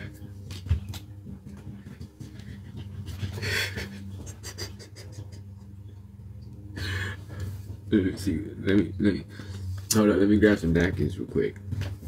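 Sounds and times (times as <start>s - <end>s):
steady low hum: 0.0s - 12.0s
man breathing heavily: 1.7s - 4.8s, 6.7s - 7.8s, 9.2s - 9.9s.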